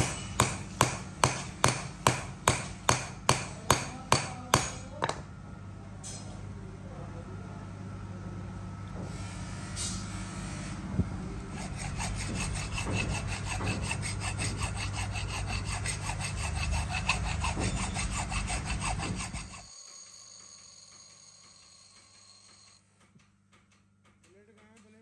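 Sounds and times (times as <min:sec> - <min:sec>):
rhythmic rasping tool strokes: 0:00.0 - 0:04.9, 0:11.4 - 0:22.8.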